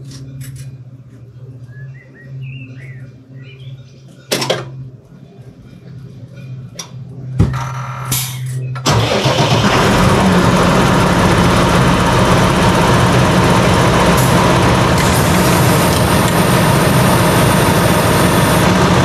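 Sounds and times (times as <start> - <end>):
starter cranking whine: 8.8 - 19.0
diesel engine running: 8.9 - 19.0.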